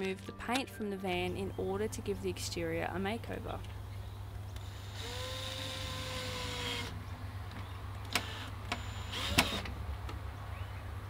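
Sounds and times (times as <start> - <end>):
cordless drill motor whining: 4.6 - 7.0, 8.1 - 9.7.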